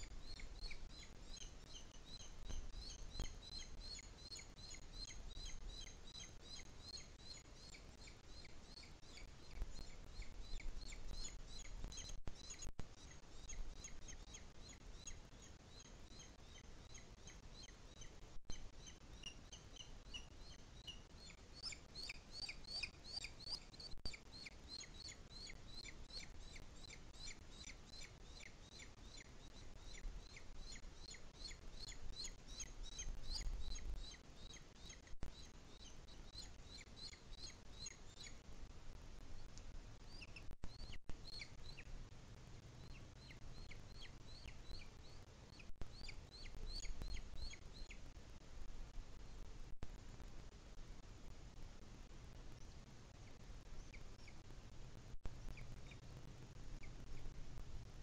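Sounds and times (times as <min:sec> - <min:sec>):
eagle chick begging calls: 0:13.4 - 0:35.0.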